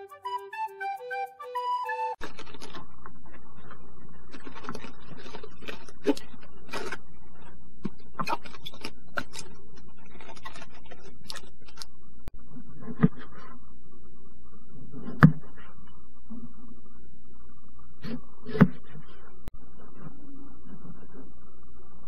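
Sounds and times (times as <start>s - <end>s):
lettuce leaves crackling and snapping: 2.2s - 2.9s, 4.3s - 7.0s
steady low hum: 2.2s - 22.0s.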